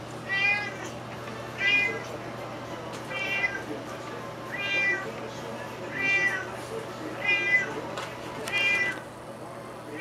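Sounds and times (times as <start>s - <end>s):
cat meowing: 0.3s - 0.9s, 1.6s - 2.1s, 3.1s - 3.6s, 4.5s - 5.1s, 5.9s - 6.5s, 7.2s - 7.8s, 8.5s - 9.0s.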